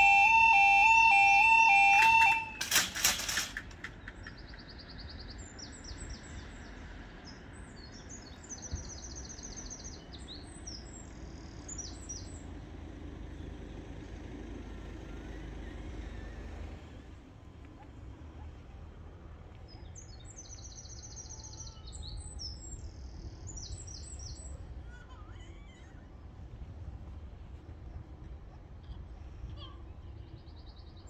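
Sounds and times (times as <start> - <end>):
crossing barrier clattering: 0.0 - 4.7
birds chirping: 0.0 - 12.6, 19.5 - 26.4
low outdoor rumble: 2.3 - 31.0.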